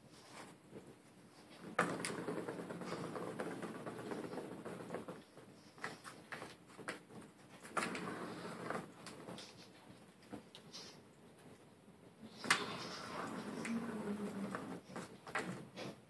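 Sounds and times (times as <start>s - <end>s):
ball rolling in plastic track: 1.5s - 9.7s, 12.4s - 15.8s.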